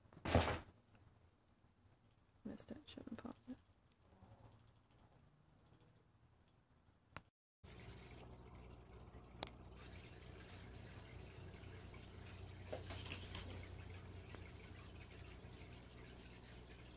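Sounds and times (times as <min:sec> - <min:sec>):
low steady hum: 0:07.7 - 0:16.9.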